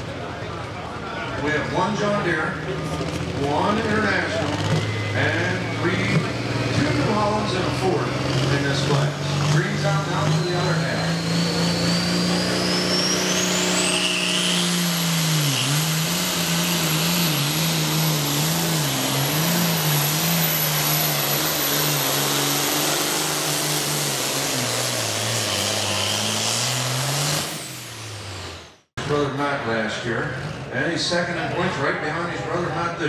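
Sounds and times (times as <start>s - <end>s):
pulling tractor engine: 0.0s - 29.3s
turbo whine: 9.6s - 28.8s.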